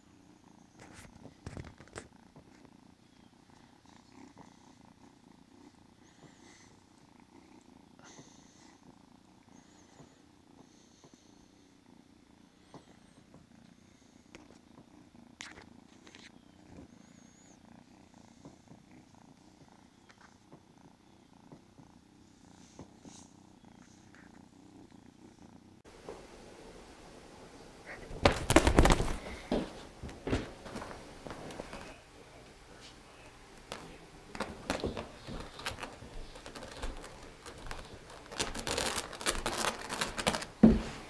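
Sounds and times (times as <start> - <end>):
kitten purring: 0.0 - 41.0.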